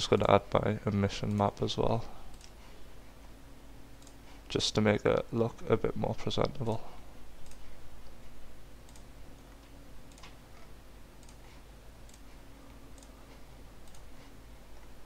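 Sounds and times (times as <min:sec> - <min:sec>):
low background hum: 0:00.0 - 0:15.0
computer mouse clicks: 0:02.3 - 0:02.6, 0:04.0 - 0:04.2, 0:07.4 - 0:07.7, 0:08.8 - 0:11.4, 0:12.0 - 0:14.1.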